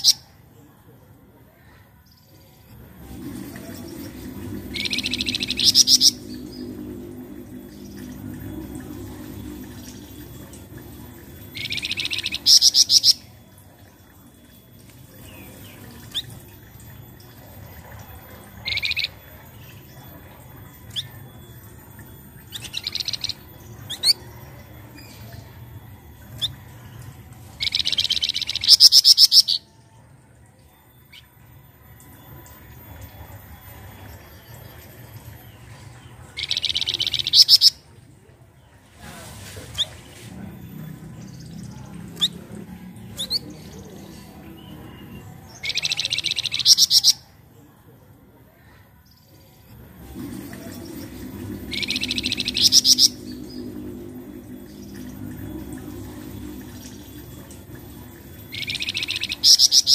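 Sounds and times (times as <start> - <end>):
bird harsh buzzy rattling calls: 2.8 - 13.4, 36.4 - 37.8, 49.9 - 59.9.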